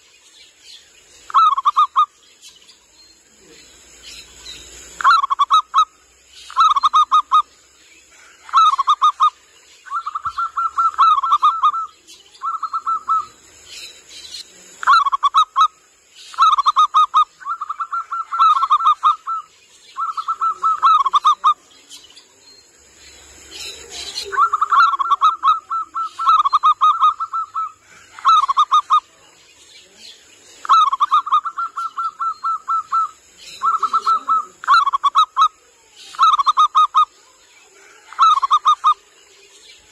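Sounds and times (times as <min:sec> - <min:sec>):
dove cooing: 0:08.5 - 0:13.4, 0:16.4 - 0:21.6, 0:23.6 - 0:29.2, 0:30.6 - 0:35.6.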